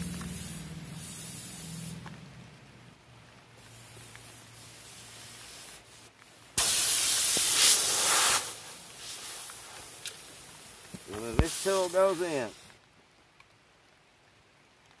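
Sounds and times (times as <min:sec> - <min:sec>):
air hissing out of tire: 0:00.0 - 0:02.1, 0:03.6 - 0:12.8.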